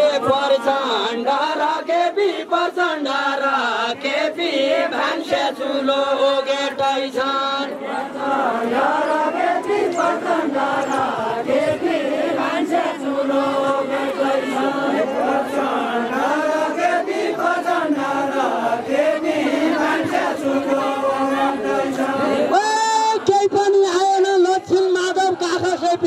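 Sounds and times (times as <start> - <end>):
man singing into a microphone: 0.0 - 7.8
men singing in chorus: 0.0 - 22.6.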